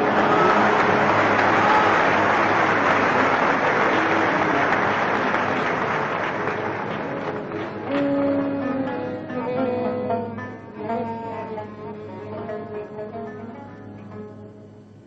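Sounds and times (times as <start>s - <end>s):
audience applauding: 0.0s - 9.0s
orchestra long held notes: 0.0s - 13.3s.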